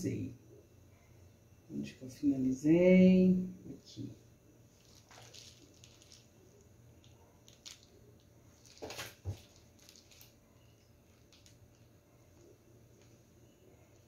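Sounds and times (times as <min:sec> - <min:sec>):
low steady hum: 0:00.0 - 0:14.0
plastic bag rustle: 0:04.7 - 0:11.9.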